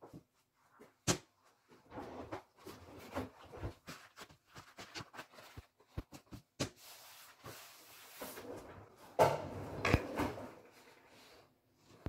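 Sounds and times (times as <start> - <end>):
paper towel rustling: 2.5 - 8.4.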